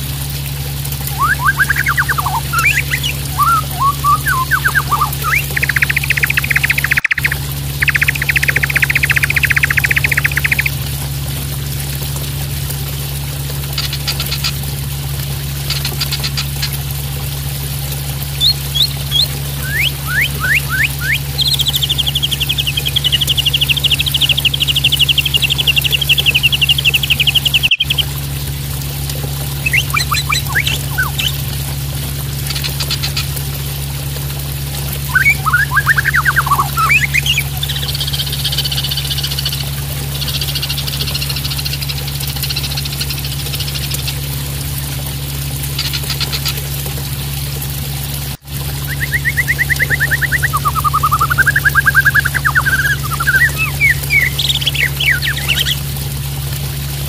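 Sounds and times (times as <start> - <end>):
water splashing: 0.0 - 43.5, 45.1 - 57.0
bird singing whistles and trills: 1.1 - 10.8, 18.4 - 28.1, 29.6 - 31.4, 35.1 - 39.6, 48.8 - 55.8.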